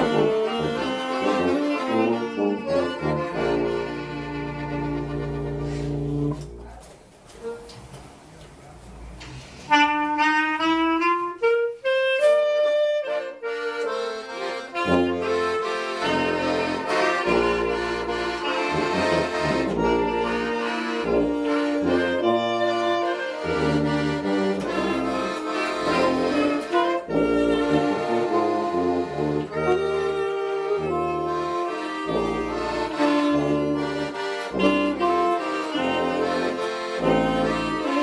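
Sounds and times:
tuba bass line: 0.0s - 6.8s, 12.5s - 38.0s
small band playing a hymn: 0.0s - 8.5s, 9.2s - 38.0s.

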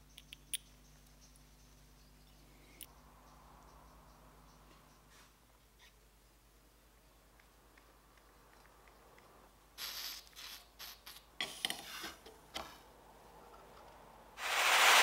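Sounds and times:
gas torch hissing: 9.8s - 11.3s, 14.4s - 15.0s.

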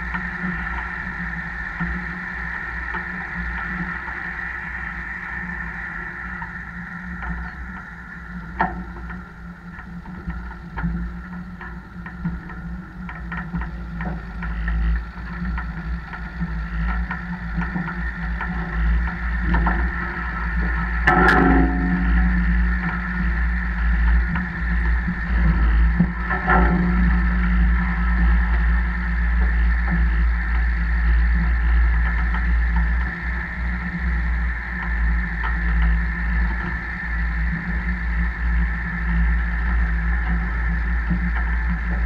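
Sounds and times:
loud metal clank: 21.1s - 23.0s.

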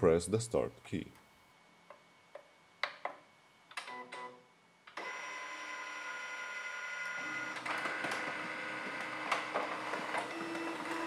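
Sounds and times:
printer motor whirring: 4.9s - 11.0s.

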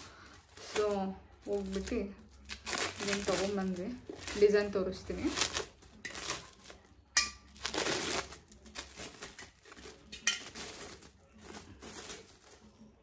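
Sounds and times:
wrapping rustling and crinkling: 0.0s - 13.0s
metal pot being handled: 9.0s - 12.2s.

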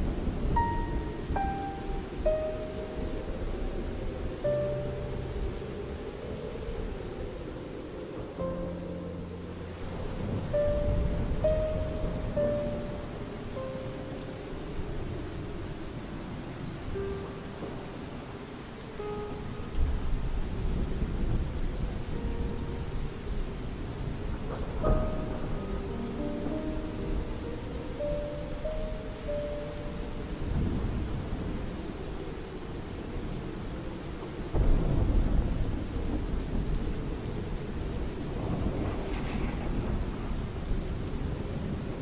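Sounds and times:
soft slow piano notes: 0.0s - 42.0s
steady rain: 0.0s - 42.0s
deep rumbling thunder: 8.5s - 13.4s, 19.5s - 27.4s, 30.0s - 42.0s
thunder crack: 34.5s - 36.8s, 38.3s - 41.0s.

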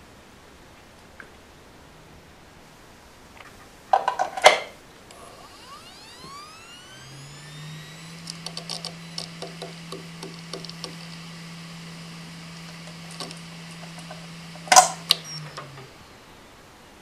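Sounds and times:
hard drive clicks: 3.4s - 16.2s
hard drive spinning up: 3.4s - 17.0s
hard drive heads ticking: 5.0s - 16.5s.

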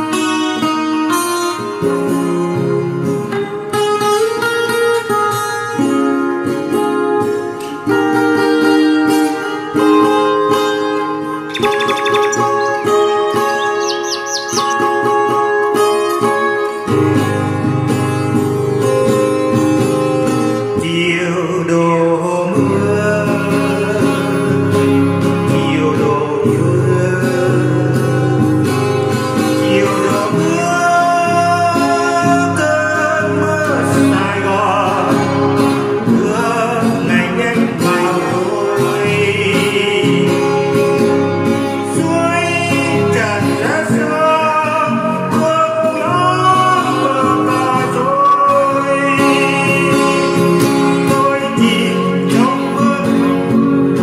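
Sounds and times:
acoustic guitar: 0.0s - 54.0s
man singing: 20.8s - 28.5s, 29.6s - 40.9s, 41.9s - 54.0s.

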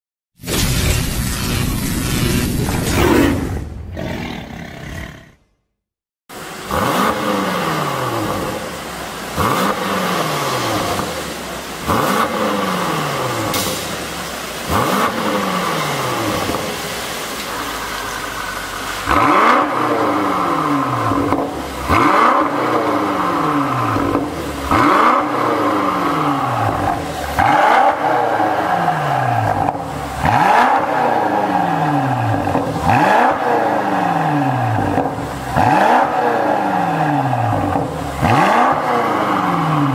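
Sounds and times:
car engine idling: 6.3s - 24.7s
car engine revving: 6.3s - 39.9s.

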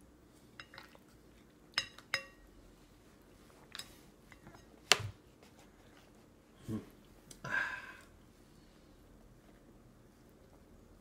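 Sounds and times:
spoon clinking against metal bowl: 1.8s - 2.5s.

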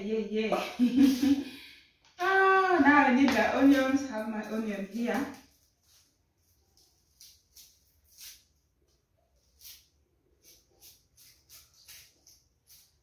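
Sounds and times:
knife scraping onion skin: 5.1s - 8.6s, 9.4s - 13.0s.

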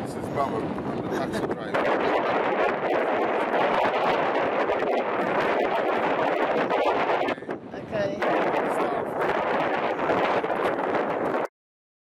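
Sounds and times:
wind on microphone: 0.0s - 11.5s.

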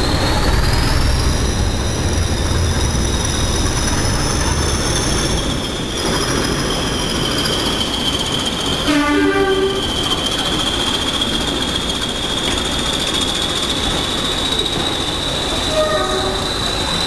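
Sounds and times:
train wheel squeal: 0.0s - 17.0s
locomotive horn: 8.8s - 9.9s, 15.7s - 16.5s.

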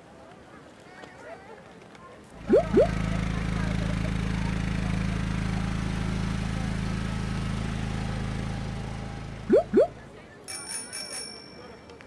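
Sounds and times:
quick rising toots: 2.4s - 3.0s, 9.4s - 10.0s
old tractor engine running: 2.4s - 10.1s.

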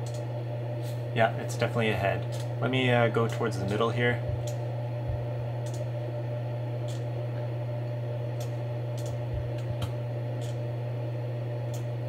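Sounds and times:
computer mouse clicks: 0.0s - 0.2s, 5.6s - 5.9s, 6.8s - 7.1s, 8.4s - 10.6s
low hum: 0.0s - 12.0s.

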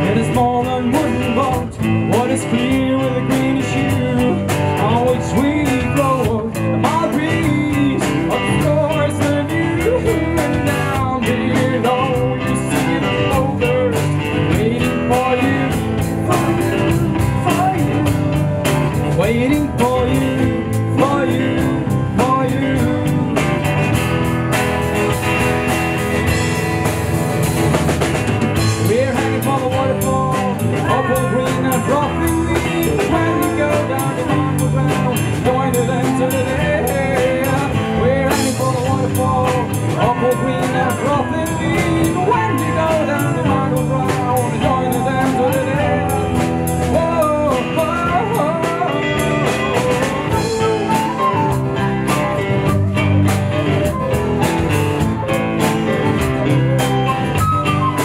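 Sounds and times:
man singing: 0.0s - 24.6s, 28.5s - 58.0s
live rock band playing: 0.0s - 58.0s.

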